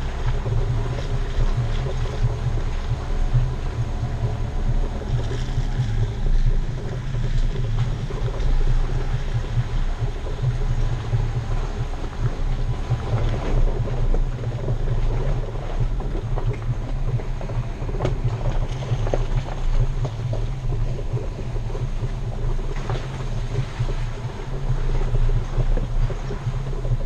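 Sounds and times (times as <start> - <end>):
low engine rumble: 0.0 - 27.0
wind noise on microphone: 0.0 - 27.0.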